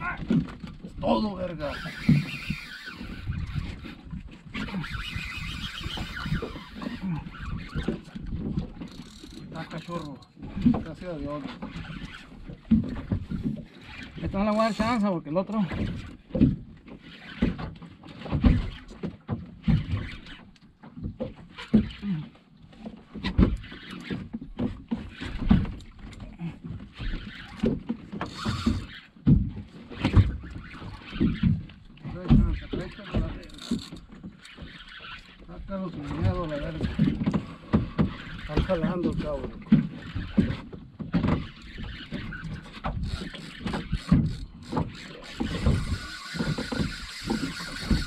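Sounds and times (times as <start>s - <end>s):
water slapping against boat hull: 0.0s - 48.0s
water splashing: 41.3s - 48.0s.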